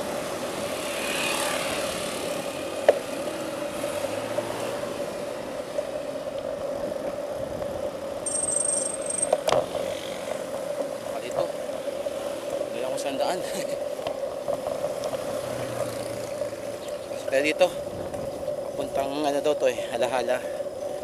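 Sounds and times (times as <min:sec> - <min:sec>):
bicycle riding on road: 0:00.0 - 0:21.0
short high-pitched squeal: 0:08.3 - 0:09.3.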